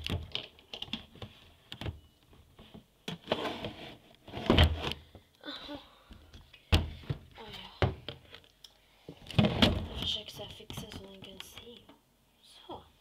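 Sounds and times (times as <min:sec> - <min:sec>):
handling knocks and thuds: 0:06.7 - 0:08.2.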